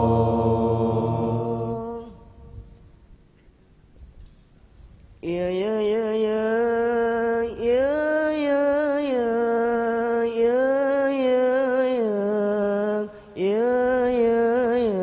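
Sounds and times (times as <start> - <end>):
man singing into a microphone: 5.2 - 15.0.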